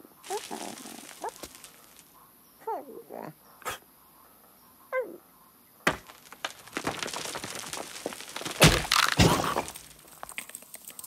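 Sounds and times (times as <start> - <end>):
heavy stone thuds: 0.2 - 2.0, 5.8 - 10.6
rock cracking: 0.2 - 2.1, 5.8 - 11.0
rock crumbling: 0.2 - 2.1, 5.8 - 11.0.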